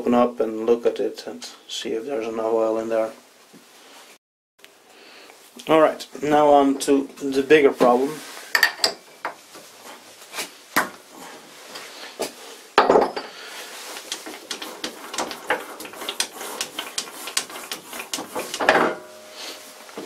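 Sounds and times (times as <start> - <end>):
metal clunk: 18.6 - 19.3.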